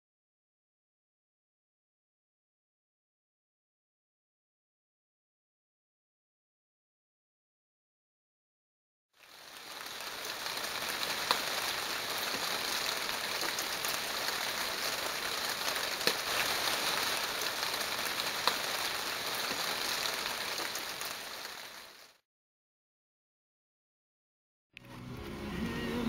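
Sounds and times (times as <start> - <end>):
rain on wet concrete: 9.2 - 22.2.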